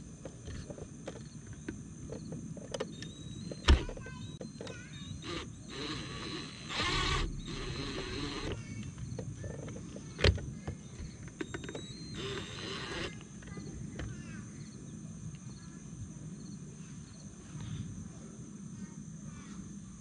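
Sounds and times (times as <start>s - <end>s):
insects chirring: 0.0s - 20.0s
cordless drill whirring: 5.2s - 8.6s, 11.4s - 13.2s.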